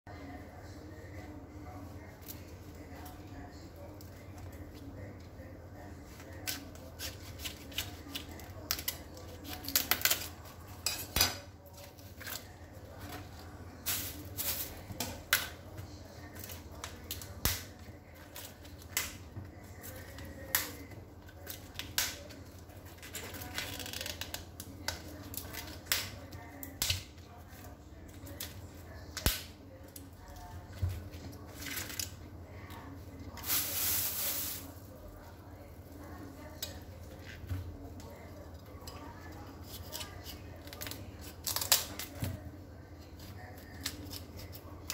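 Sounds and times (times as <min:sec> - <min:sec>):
cauliflower leaves cracking: 0:40.6 - 0:42.1.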